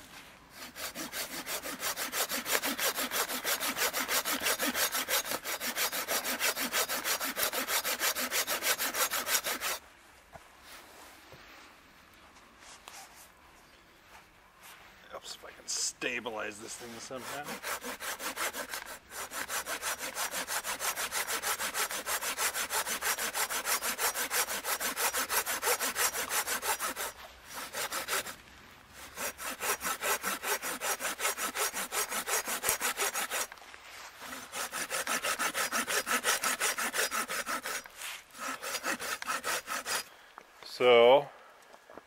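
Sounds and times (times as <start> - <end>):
hand saw cutting wood: 0.5 - 9.8, 16.6 - 28.4, 29.0 - 33.6, 34.2 - 40.1.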